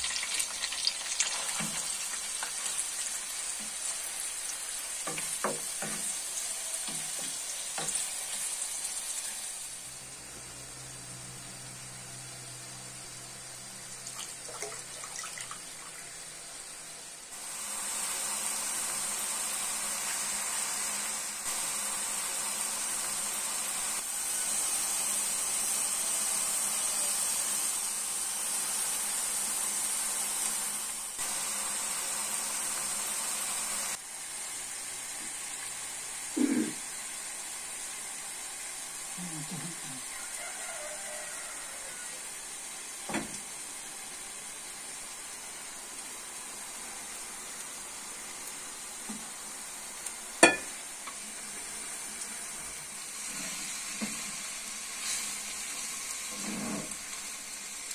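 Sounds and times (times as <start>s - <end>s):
liquid hissing in hot pot: 36.0s - 57.9s.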